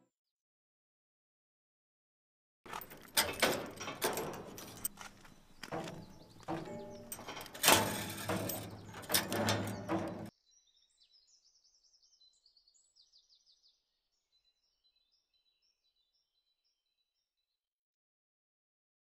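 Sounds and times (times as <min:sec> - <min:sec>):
metal gate clanking: 0:02.7 - 0:10.3.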